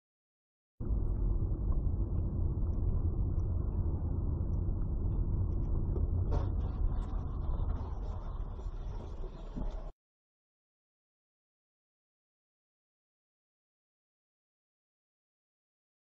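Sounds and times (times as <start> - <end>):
car engine and road rumble: 0.8 - 9.9.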